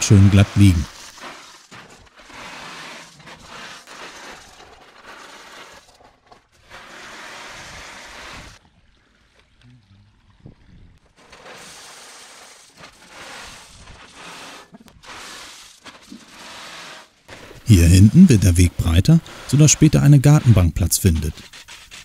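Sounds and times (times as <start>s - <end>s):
gravel pouring and rattling: 0.1s - 6.1s, 11.2s - 18.0s.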